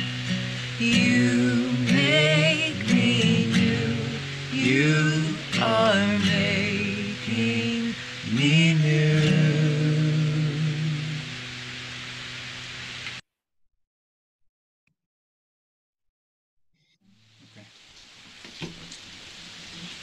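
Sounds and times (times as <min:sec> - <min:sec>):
person singing worship song: 0:00.0 - 0:11.5
strummed acoustic guitar: 0:00.0 - 0:13.1.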